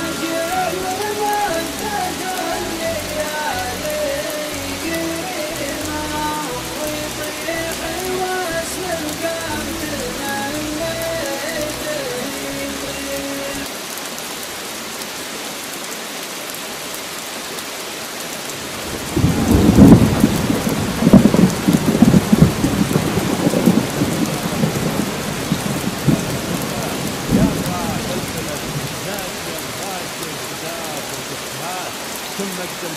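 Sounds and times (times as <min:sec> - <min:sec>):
steady rain falling: 0:00.0 - 0:32.9
thunder rolling: 0:18.8 - 0:29.8.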